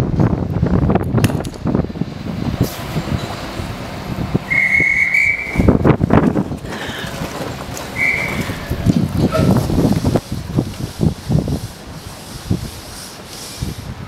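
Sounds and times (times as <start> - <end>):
low rumbling: 0.0 - 14.0
railway whistle: 4.4 - 5.8, 7.9 - 8.7.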